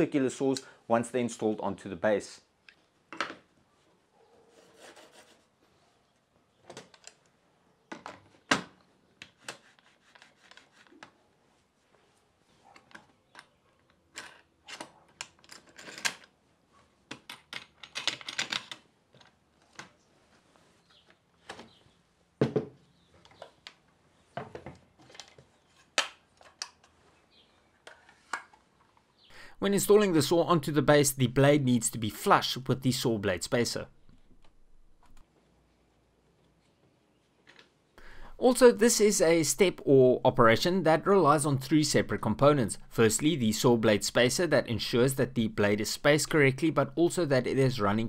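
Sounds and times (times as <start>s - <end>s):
rubbing and scraping: 4.4s - 5.6s, 9.3s - 11.8s.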